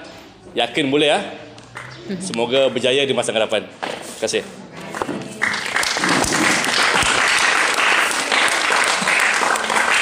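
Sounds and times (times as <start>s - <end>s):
audience applauding: 5.4s - 10.0s.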